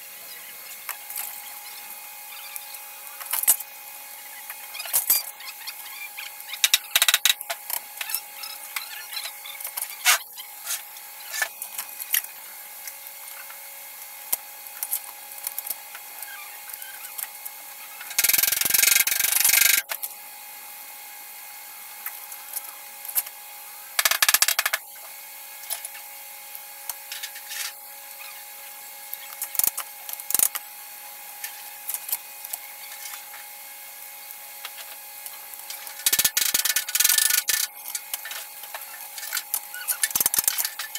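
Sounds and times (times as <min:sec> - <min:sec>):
tools clicking and knocking: 0:24.0 - 0:24.8.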